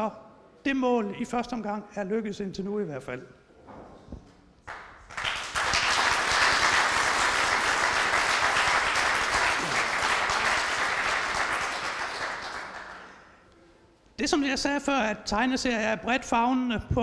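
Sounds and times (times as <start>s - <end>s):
audience applauding: 4.6s - 13.3s.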